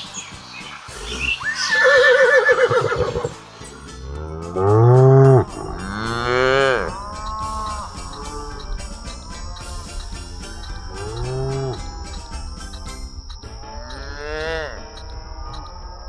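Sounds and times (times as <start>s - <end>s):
horse whinnying: 1.1s - 3.4s
cattle mooing: 4.1s - 8.7s, 10.9s - 12.2s, 13.8s - 14.8s.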